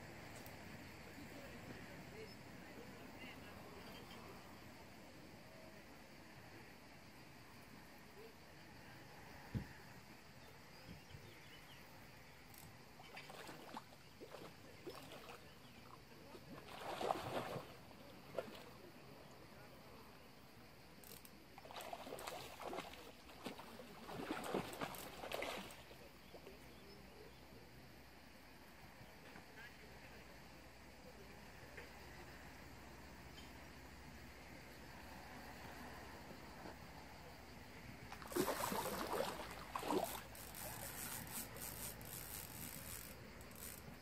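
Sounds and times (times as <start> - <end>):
fish thrashing and water splashing: 16.6 - 17.7, 21.7 - 25.8, 38.2 - 44.0.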